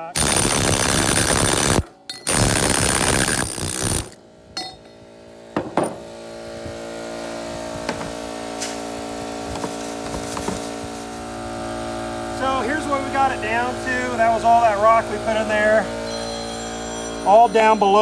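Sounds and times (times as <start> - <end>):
pneumatic air hammer pounding: 0.0 - 4.2
steady hum: 0.0 - 4.9.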